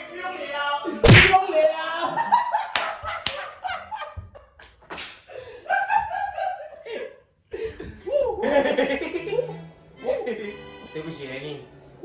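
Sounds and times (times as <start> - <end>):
people laughing loudly: 1.9 - 4.7, 5.3 - 10.8
hand claps: 2.7 - 3.5.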